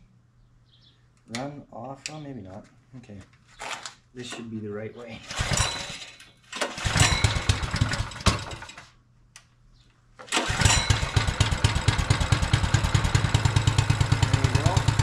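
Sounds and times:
small engine starting and running: 0:05.2 - 0:08.8, 0:10.2 - 0:15.0.

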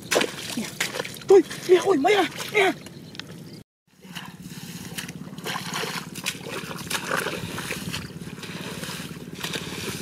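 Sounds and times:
hands squelching in wet mud: 0:00.0 - 0:02.8, 0:04.0 - 0:10.0
steady low drone: 0:04.0 - 0:10.0
trickling water: 0:04.9 - 0:10.0.

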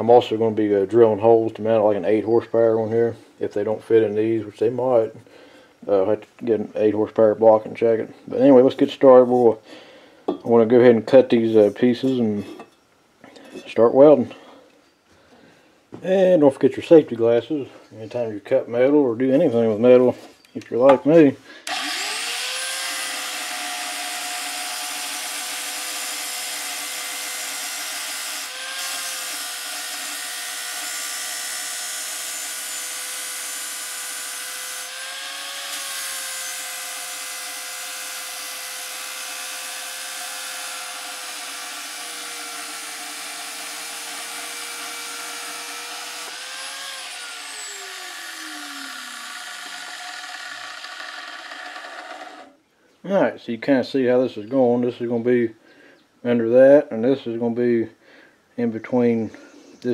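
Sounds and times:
chop saw motor whine: 0:21.6 - 0:52.6
cutoff wheel grinding steel: 0:21.6 - 0:52.6.

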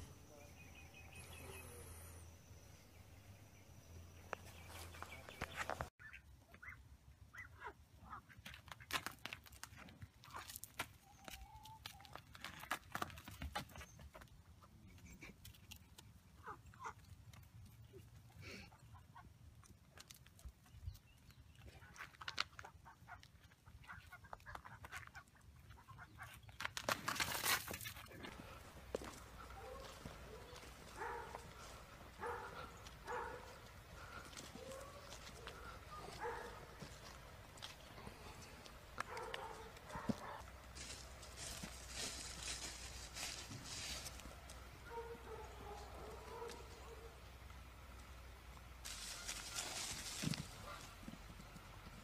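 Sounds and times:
chickens clucking: 0:21.8 - 0:26.6
ducks quacking: 0:22.6 - 0:26.4.

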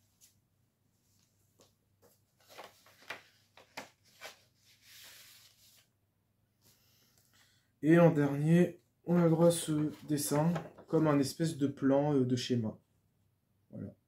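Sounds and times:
paper cards tapping and rustling: 0:01.5 - 0:04.4, 0:10.1 - 0:11.0
paper sliding rustle: 0:02.0 - 0:05.9.

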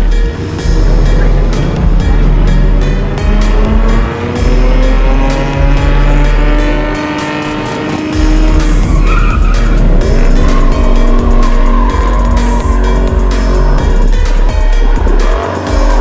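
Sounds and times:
car engine revving: 0:00.0 - 0:16.0
music with heavy bass beat: 0:00.0 - 0:16.0
tyres squealing: 0:08.5 - 0:14.0.

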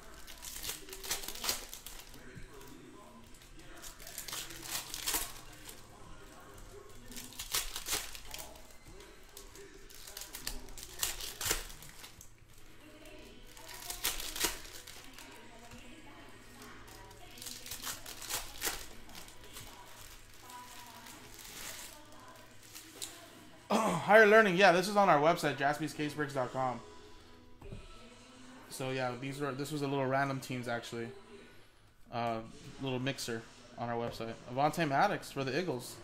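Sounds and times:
foil wrappers crinkling and tearing: 0:00.0 - 0:23.2.

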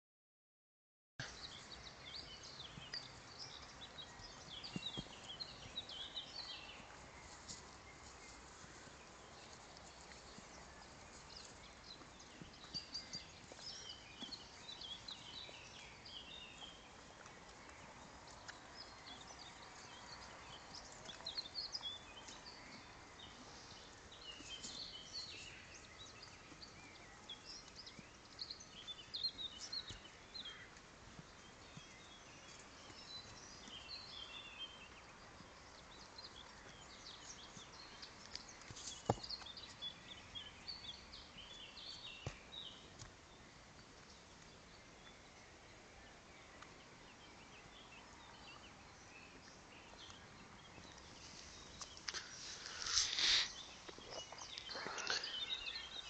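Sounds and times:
faint outdoor noise: 0:01.2 - 0:56.0
songbirds chirping and singing: 0:01.2 - 0:56.0
horse chewing grass: 0:02.8 - 0:28.9.

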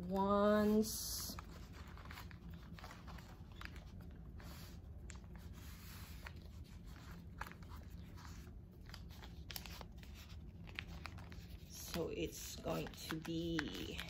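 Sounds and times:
newspaper rustling: 0:00.1 - 0:14.0.

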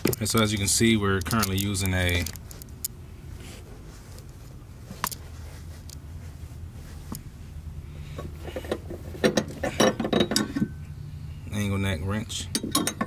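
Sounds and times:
low steady hum: 0:00.0 - 0:13.0
metal clinks: 0:12.4 - 0:13.0.

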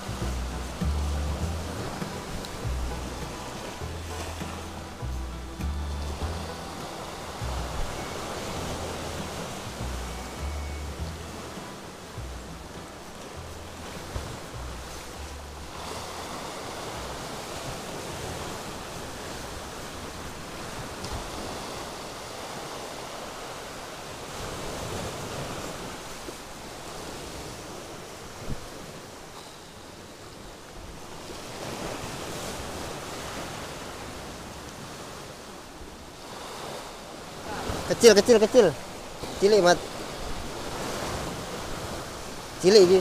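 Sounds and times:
sea waves breaking on rocks: 0:00.0 - 0:43.0.

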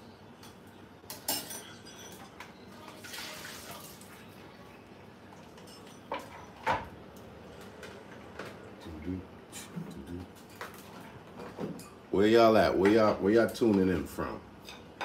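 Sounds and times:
dishes and utensils clattering: 0:00.4 - 0:02.6, 0:05.4 - 0:07.0, 0:10.4 - 0:12.0.

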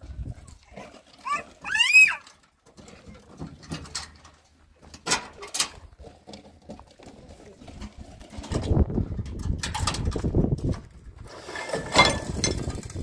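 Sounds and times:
high animal call: 0:01.2 - 0:02.3.

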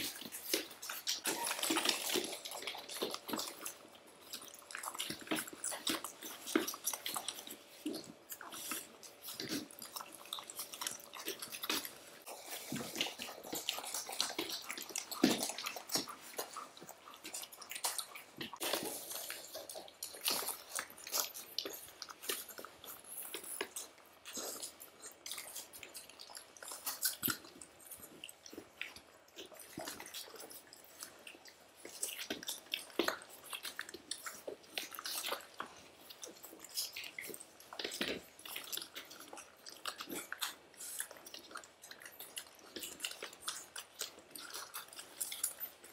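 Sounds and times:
puppies suckling wet smacking: 0:00.0 - 0:45.9.

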